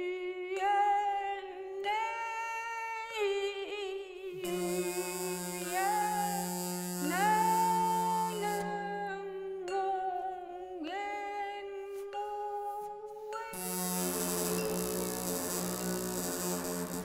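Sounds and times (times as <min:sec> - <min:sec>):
wordless singing and humming: 0:00.0 - 0:17.0
low steady drone with hiss: 0:04.4 - 0:08.7, 0:13.6 - 0:17.0.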